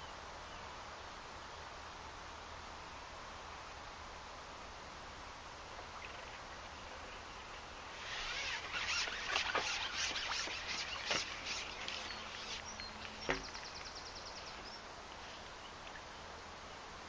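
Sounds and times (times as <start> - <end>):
fishing pole rustling and scraping: 7.9 - 13.7.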